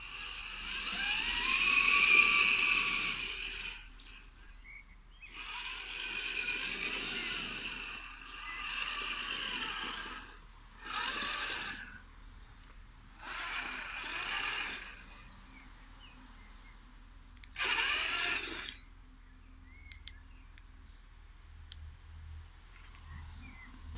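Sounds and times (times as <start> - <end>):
rc truck motors whirring: 0.0 - 15.7, 17.4 - 19.0.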